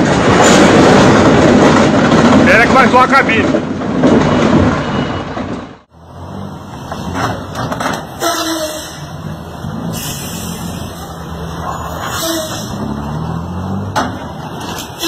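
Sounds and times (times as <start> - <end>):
truck engine droning: 4.1 - 15.0
short squeal: 11.6 - 12.8.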